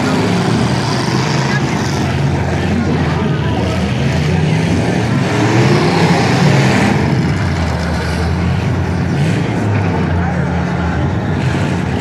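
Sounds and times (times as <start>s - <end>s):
truck engines revving: 0.0s - 12.0s.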